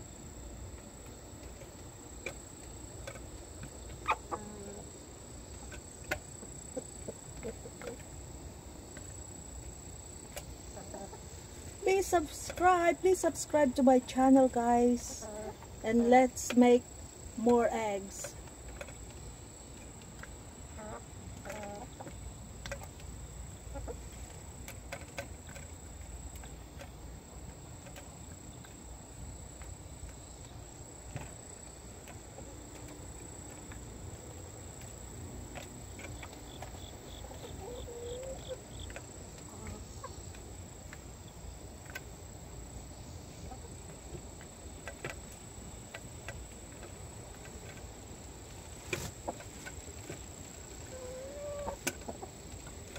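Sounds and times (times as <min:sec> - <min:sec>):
insects trilling: 0:00.0 - 0:52.9
hens clucking: 0:03.1 - 0:08.2, 0:10.3 - 0:13.7, 0:14.7 - 0:16.7, 0:20.1 - 0:24.4, 0:35.5 - 0:40.5, 0:43.3 - 0:44.2, 0:50.8 - 0:52.9.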